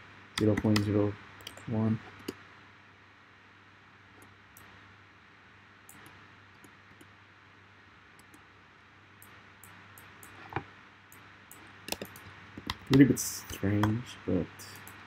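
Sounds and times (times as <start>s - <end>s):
low room hum: 0.0s - 15.0s
mouse and keyboard clicks: 0.4s - 2.4s, 5.9s - 7.1s, 11.5s - 14.0s.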